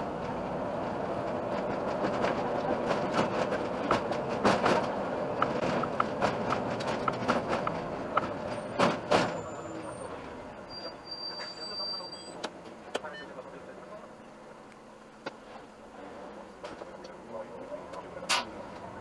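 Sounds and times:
bus rolling and motor noise: 0.0s - 19.0s
sharp clicks and knocks: 1.5s - 9.3s.

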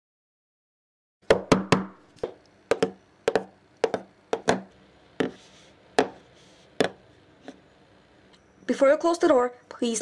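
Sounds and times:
footsteps on hard floor: 2.2s - 5.4s.

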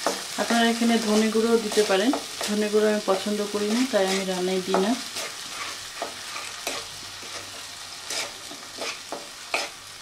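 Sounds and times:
paste sizzling in oil: 0.0s - 10.0s
wooden spatula scraping pan: 3.6s - 9.8s.

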